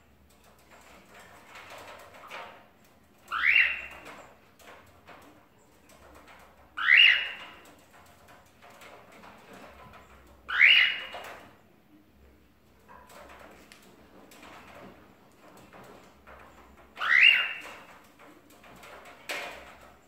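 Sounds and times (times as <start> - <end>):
cockatiel calling: 3.3 - 4.0, 6.8 - 7.4, 10.5 - 11.2, 17.0 - 17.7.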